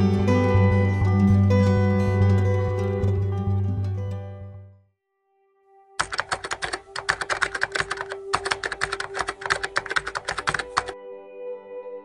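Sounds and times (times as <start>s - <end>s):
rapid keyboard typing clicks: 6.0s - 11.0s.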